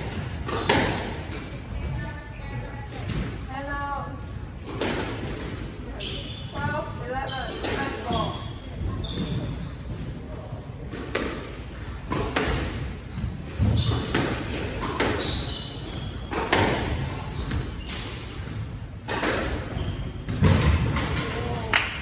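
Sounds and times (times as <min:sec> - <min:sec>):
squash ball hits echoing: 0:00.0 - 0:02.0, 0:04.6 - 0:05.6, 0:10.9 - 0:18.4, 0:19.0 - 0:22.0
shoe squeaks on wooden floor: 0:01.8 - 0:02.8, 0:05.9 - 0:10.3, 0:12.4 - 0:14.4, 0:15.1 - 0:19.0, 0:19.7 - 0:20.3.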